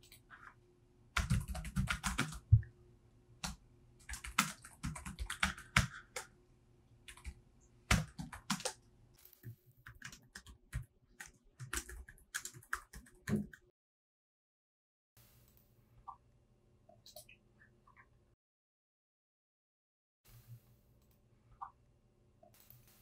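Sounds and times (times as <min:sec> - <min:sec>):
typing on laptop keyboard: 0:01.2 - 0:02.5, 0:03.4 - 0:06.3, 0:07.1 - 0:08.8, 0:09.9 - 0:13.6.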